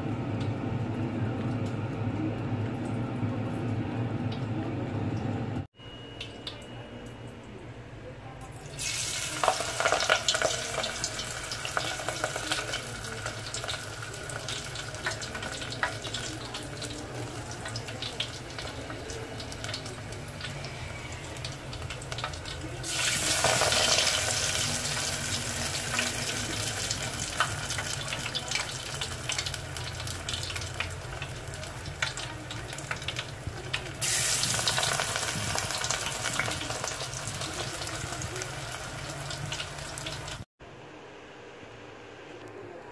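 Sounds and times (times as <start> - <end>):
leaves deep-frying in hot oil: 8.6 - 40.5.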